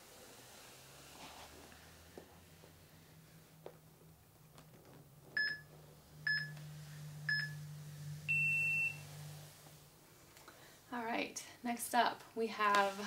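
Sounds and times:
timer beeps: 0:07.3 - 0:07.6, 0:08.3 - 0:09.0.

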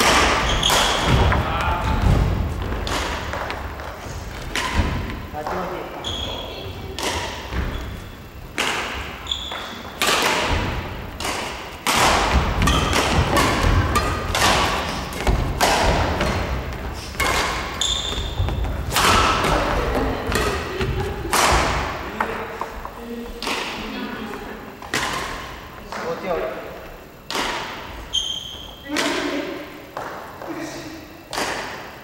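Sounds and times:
rackets hitting shuttlecock: 0:00.0 - 0:05.3, 0:06.9 - 0:22.2, 0:23.4 - 0:23.9, 0:24.9 - 0:26.1, 0:27.2 - 0:28.0, 0:28.6 - 0:30.2, 0:31.2 - 0:32.0.

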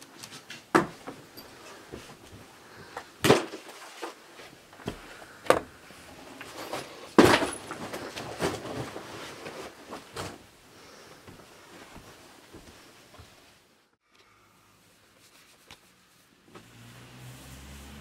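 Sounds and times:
jacket rustling: 0:05.9 - 0:13.7.

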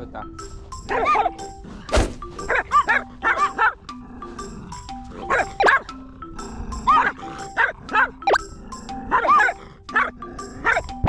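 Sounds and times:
background music: 0:00.0 - 0:11.0
small dog yapping: 0:00.9 - 0:01.4, 0:02.4 - 0:03.8, 0:05.2 - 0:05.9, 0:06.9 - 0:08.4, 0:09.1 - 0:10.9.

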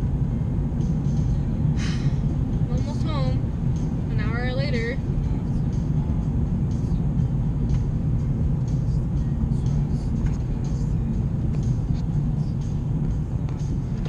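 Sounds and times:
car interior driving rumble: 0:00.0 - 0:14.0.

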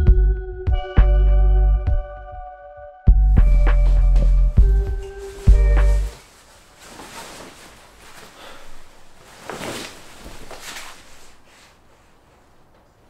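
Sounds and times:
music with deep throbbing bass: 0:00.0 - 0:02.4, 0:03.1 - 0:06.1
jacket rustling: 0:03.2 - 0:13.0.

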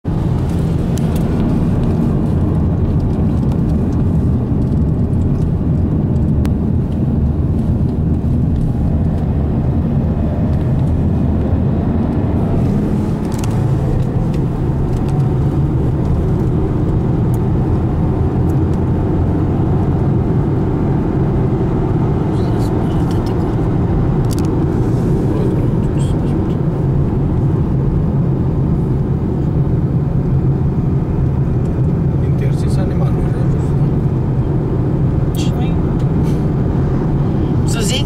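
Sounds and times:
car engine and tyres rumbling: 0:00.0 - 0:38.0.

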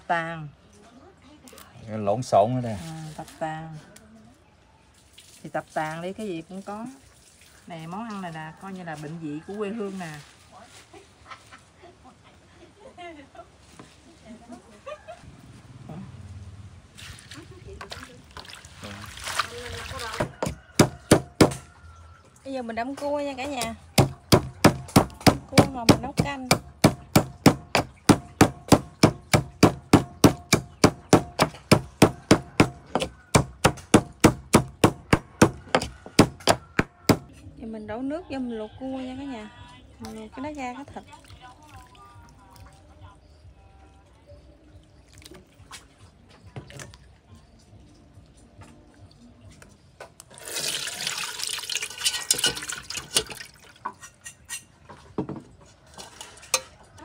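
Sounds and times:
pestle pounding in mortar: 0:20.2 - 0:21.7, 0:23.9 - 0:37.4
water pouring into pot: 0:50.3 - 0:53.8
utensils and crockery clicking: 0:51.9 - 0:54.7.

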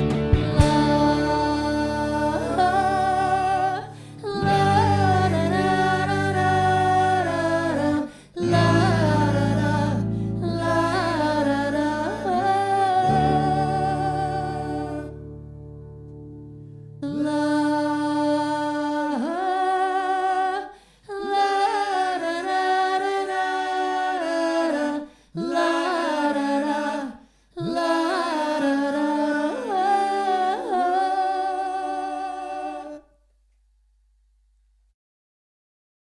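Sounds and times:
a cappella vocal harmony: 0:00.0 - 0:15.2, 0:17.0 - 0:33.2
breaths: 0:03.8 - 0:04.3, 0:08.0 - 0:08.4, 0:10.0 - 0:10.4, 0:16.5 - 0:17.0, 0:20.7 - 0:21.1, 0:25.0 - 0:25.4, 0:27.2 - 0:27.6.

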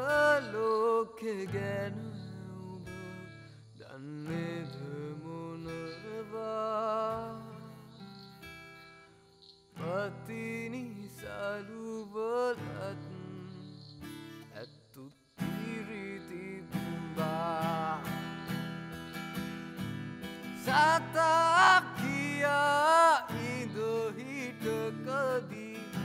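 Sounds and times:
person singing: 0:00.0 - 0:07.9, 0:15.0 - 0:18.5, 0:20.5 - 0:26.0
acoustic guitar: 0:00.0 - 0:26.0.

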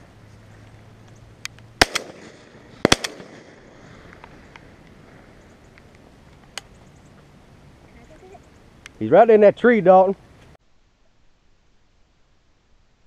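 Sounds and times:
shotgun shots: 0:01.8 - 0:03.8.

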